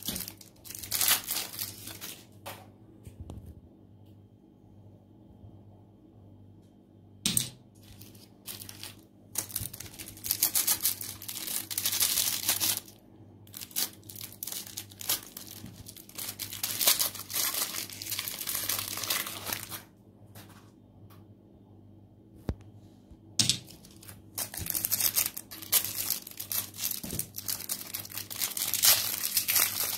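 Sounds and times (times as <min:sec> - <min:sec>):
cellophane wrapper crinkling: 0:00.0 - 0:02.4, 0:07.8 - 0:19.9, 0:23.6 - 0:29.9.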